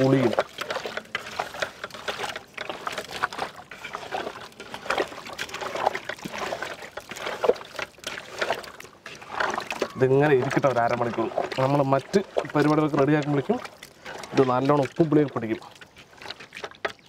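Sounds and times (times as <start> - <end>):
hands squishing wet food: 0.0 - 17.0.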